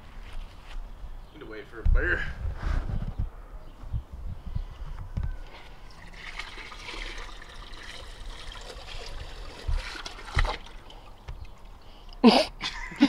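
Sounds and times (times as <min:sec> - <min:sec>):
water splashing into pool: 0:05.9 - 0:11.7.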